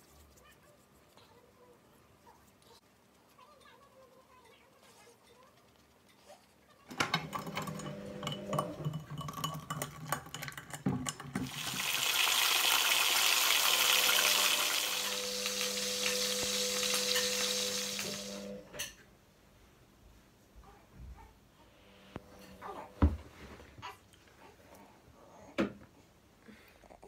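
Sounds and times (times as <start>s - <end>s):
pan and utensils clattering: 6.9s - 12.5s, 16.0s - 19.0s
meat sizzling in frying pan: 11.4s - 18.5s.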